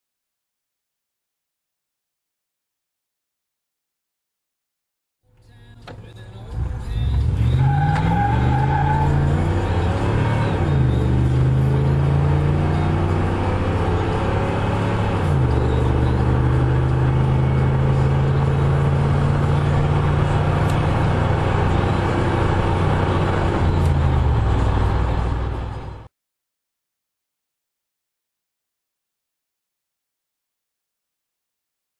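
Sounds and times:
truck engine accelerating hard: 5.8 - 26.1.

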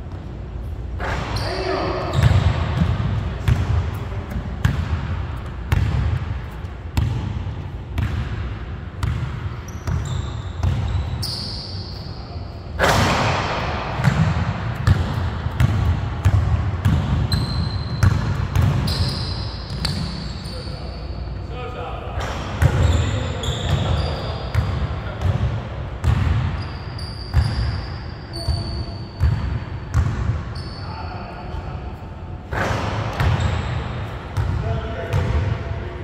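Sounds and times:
sneaker squeaks: 1.0 - 4.8, 9.0 - 13.2, 16.8 - 21.4, 22.3 - 25.4, 26.0 - 31.5, 32.6 - 35.3.

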